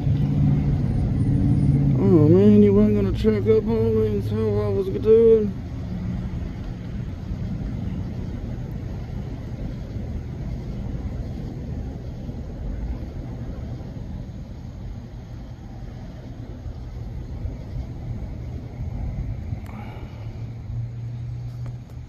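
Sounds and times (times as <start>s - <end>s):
car engine and tyres rumbling: 0.0s - 22.0s.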